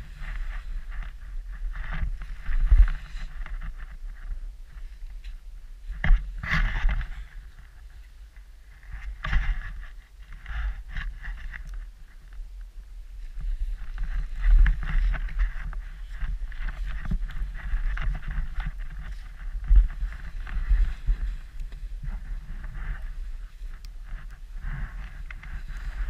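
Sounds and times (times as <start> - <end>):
skis swishing through snow: 0.0 - 4.0, 13.2 - 26.0
wind rumble on microphone: 0.0 - 26.0.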